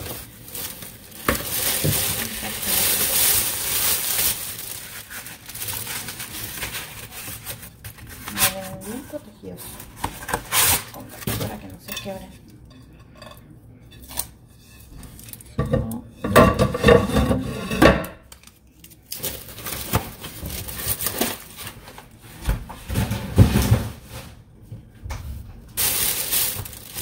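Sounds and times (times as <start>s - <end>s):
paper wrapping rustling: 0.0s - 11.6s, 18.3s - 24.4s, 25.8s - 27.0s.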